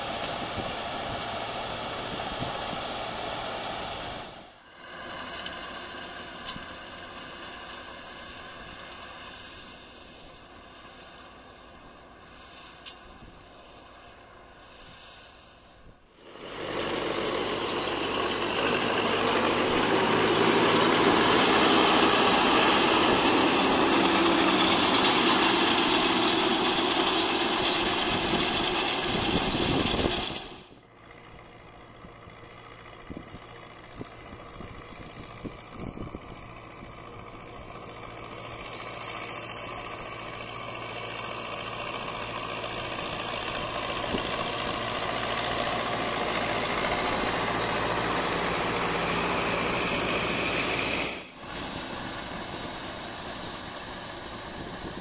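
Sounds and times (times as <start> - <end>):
tractor engine: 0.0 - 55.0.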